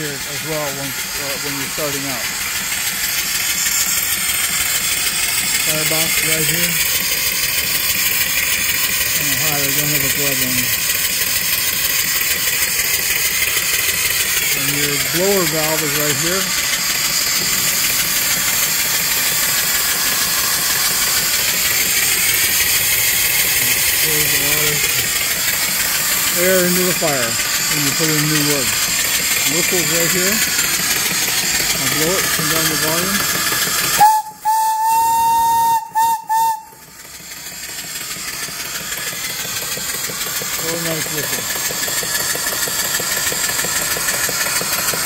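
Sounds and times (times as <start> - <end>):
steam engine running: 0.0 - 45.0
steam hissing from boiler: 0.0 - 45.0
steam whistle blasts: 34.0 - 36.8.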